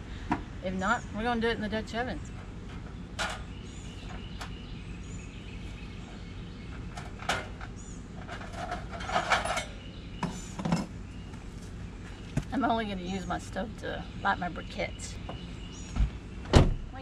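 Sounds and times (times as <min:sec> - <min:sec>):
camp stove clanking and rattling: 0:02.3 - 0:04.6, 0:06.1 - 0:11.0.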